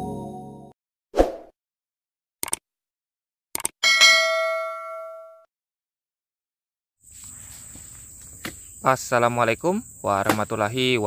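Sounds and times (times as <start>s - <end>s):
notification bell ding: 3.8s - 5.5s.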